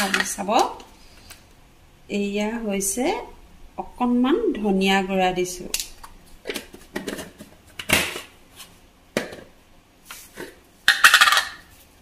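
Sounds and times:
kitchen containers clicking: 10.9 - 11.6.

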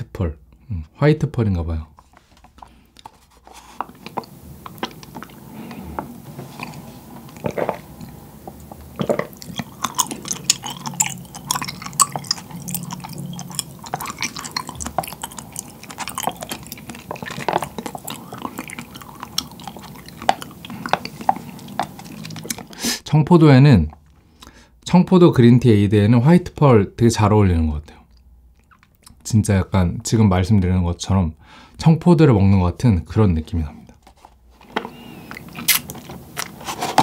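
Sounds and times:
chewing tapioca pearls: 2.6 - 22.9, 28.0 - 29.3, 34.8 - 37.0
wet mouth clicks: 3.9 - 22.9, 35.3 - 36.6.

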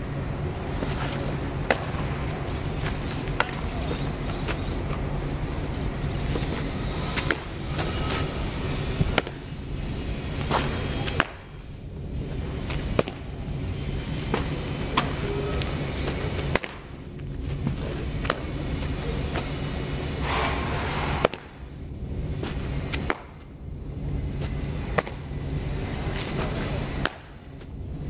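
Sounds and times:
steady low hum: 0.0 - 28.0
baseball smacking into glove: 26.4 - 27.4.

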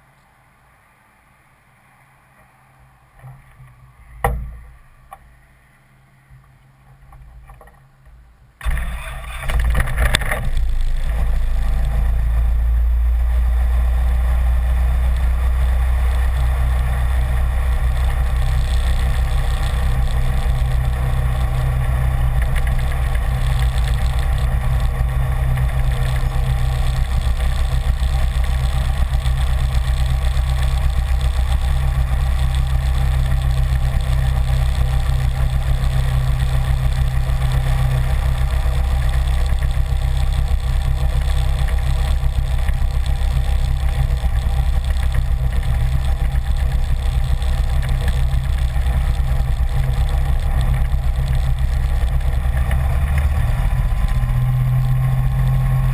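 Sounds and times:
airplane engine idling drone: 0.0 - 55.9
thump: 4.2 - 4.6.

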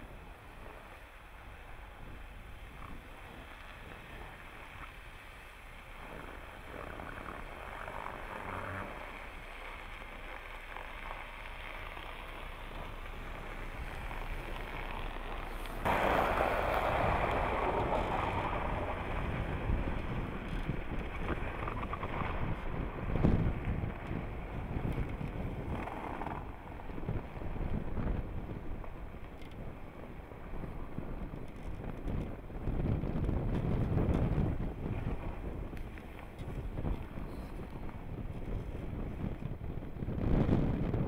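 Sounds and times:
tyres driving through snow: 0.0 - 41.0
wind noise on microphone: 0.0 - 41.0
car engine running: 4.2 - 29.5
pickup truck rushing through snow: 7.4 - 28.1.

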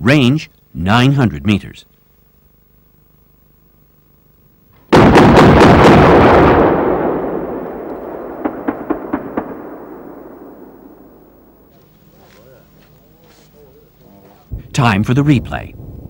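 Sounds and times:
distant sharp cracks: 4.8 - 13.0
cannon firing rapid burst: 4.9 - 11.7.

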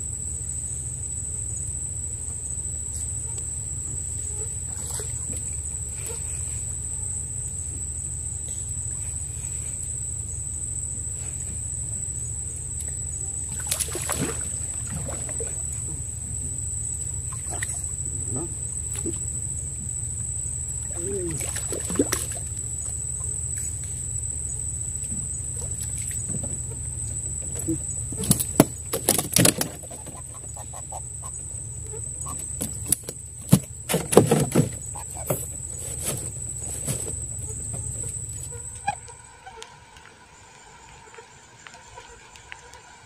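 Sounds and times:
high-pitched insect drone: 0.0 - 43.0
boat engine humming: 1.0 - 43.0
fish splashing in water: 13.5 - 15.8, 21.2 - 22.6
knocks and clatters in a boat: 25.0 - 39.0.

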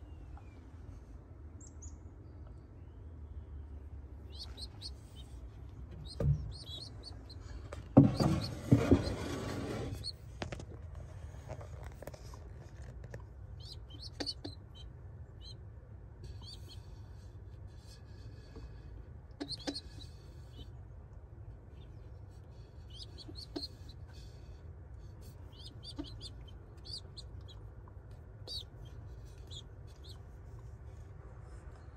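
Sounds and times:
low steady rumble: 0.0 - 31.9
pigeon squabs peeping: 4.3 - 9.2, 9.9 - 10.2, 13.5 - 15.6, 19.3 - 20.7, 22.8 - 24.4, 25.2 - 30.3.

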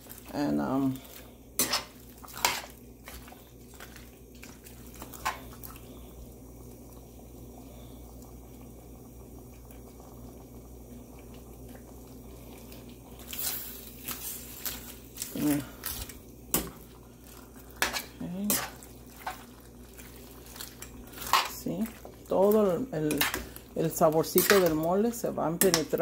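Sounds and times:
soft wet squishing: 0.0 - 6.2, 12.5 - 24.1
low steady hum: 0.0 - 26.0.

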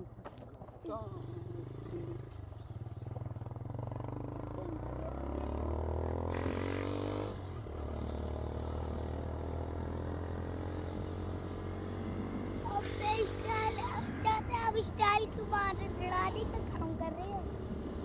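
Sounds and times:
motorcycle engine accelerating: 1.1 - 14.7.

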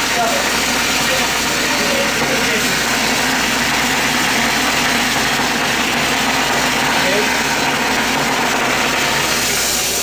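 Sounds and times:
gas torch hissing: 0.0 - 10.0.

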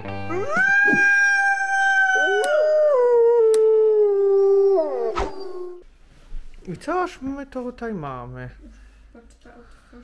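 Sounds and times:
wolf howling: 0.3 - 5.8.

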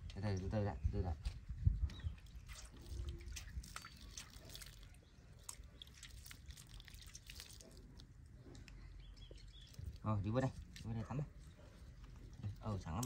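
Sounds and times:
water dripping in metal basin: 2.2 - 7.7.

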